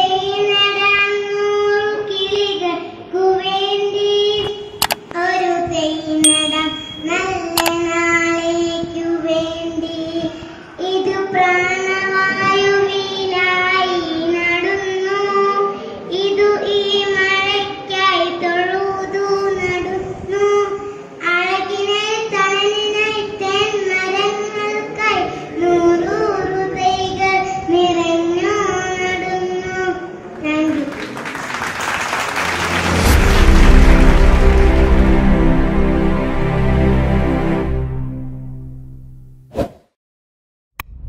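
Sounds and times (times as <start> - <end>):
sharp clicks: 4.8 - 5.2
girl singing into microphone: 5.2 - 30.9.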